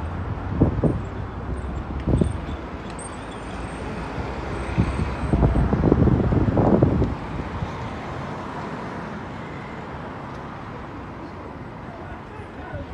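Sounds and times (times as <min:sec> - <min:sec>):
wind buffeting microphone: 0:00.1 - 0:02.8, 0:04.1 - 0:08.1.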